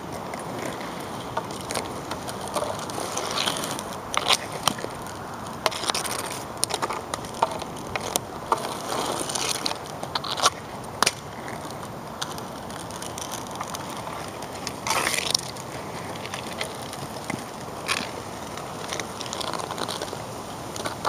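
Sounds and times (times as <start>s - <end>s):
outdoor noise: 0.0s - 21.0s
stick scraping asphalt: 0.0s - 21.0s
hockey stick knocking ball: 5.6s - 11.3s.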